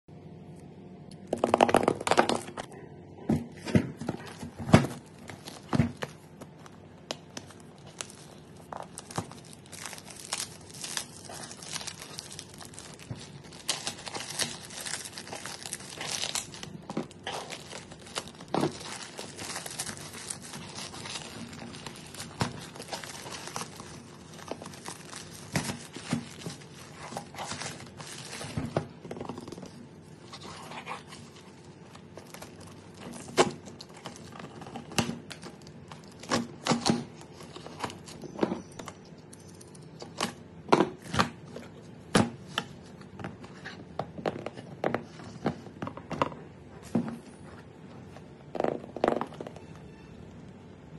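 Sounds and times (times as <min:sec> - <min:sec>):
plastic mailer tearing and crinkling: 0:04.0 - 0:38.2.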